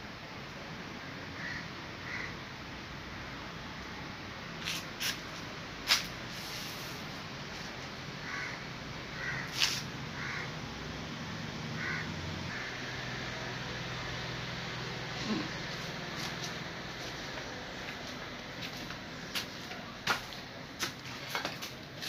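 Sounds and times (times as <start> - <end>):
crows cawing: 1.4 - 2.4, 8.2 - 10.6, 11.8 - 13.2.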